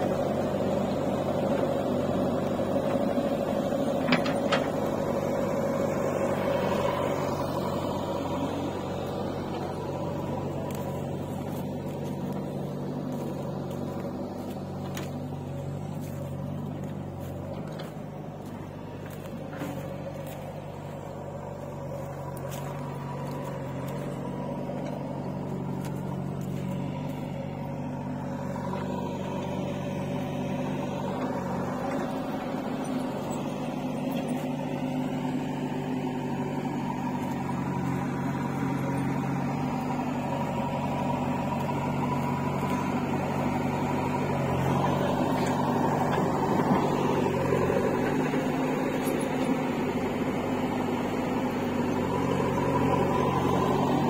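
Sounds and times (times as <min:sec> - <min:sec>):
tractor diesel engine idling: 0:00.0 - 0:54.0.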